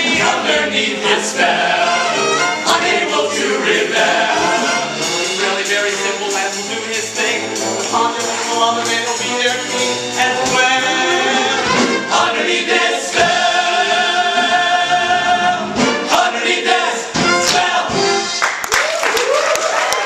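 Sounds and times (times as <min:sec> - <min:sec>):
male chorus singing: 0:00.0 - 0:18.0
band accompaniment: 0:00.0 - 0:18.7.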